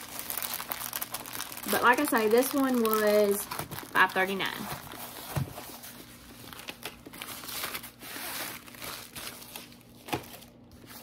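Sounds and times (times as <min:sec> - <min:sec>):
canvas and plastic crinkling: 0:00.0 - 0:11.0.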